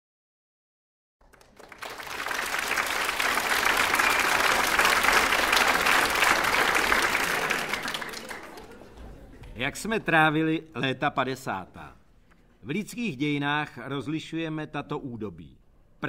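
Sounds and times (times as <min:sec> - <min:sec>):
audience applause: 0:01.2 - 0:09.4.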